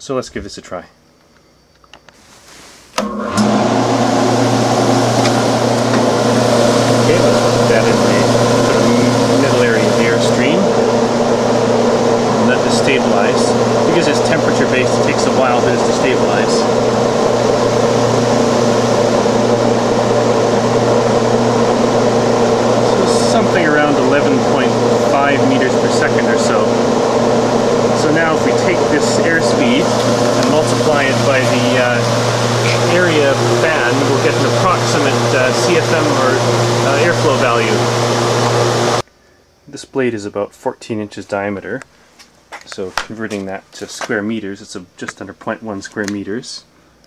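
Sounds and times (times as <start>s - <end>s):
fan air rush: 2.1s - 39.8s
fan motor hum: 2.9s - 39.1s.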